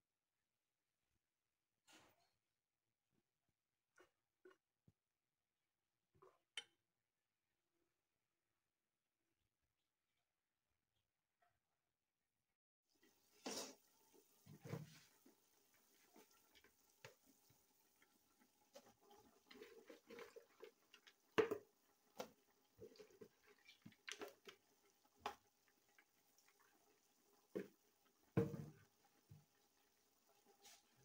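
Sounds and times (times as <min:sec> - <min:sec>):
meat cooking pops and crackles: 0:13.1 - 0:31.0.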